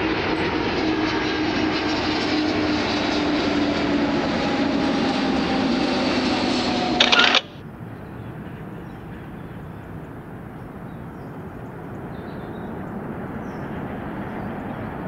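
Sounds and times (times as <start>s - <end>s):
distant jet airliner flying over: 0.0s - 15.0s.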